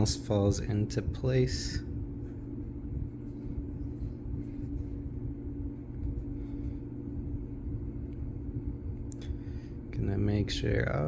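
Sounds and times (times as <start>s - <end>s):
low rumble: 0.0s - 10.9s
steady low hum: 0.0s - 11.0s
fingertips rubbing vinyl: 1.2s - 9.1s.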